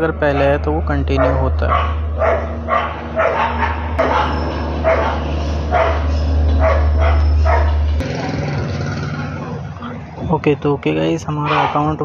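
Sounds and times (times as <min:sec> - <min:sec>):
low hum: 0:00.0 - 0:10.5
dog barking: 0:00.3 - 0:08.0, 0:11.4 - 0:12.0.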